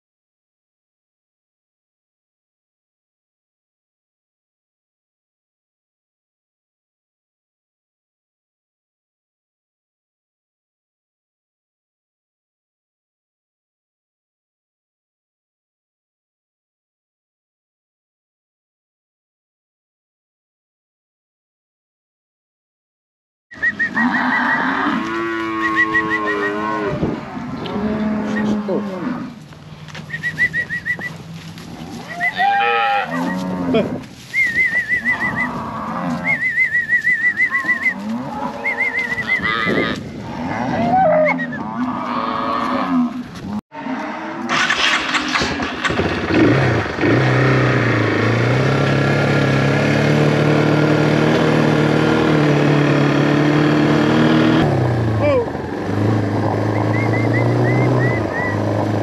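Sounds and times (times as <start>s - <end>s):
cattle mooing: 23.8s - 29.4s, 31.1s - 34.1s, 34.8s - 44.7s
vehicle engine running: 44.6s - 59.0s.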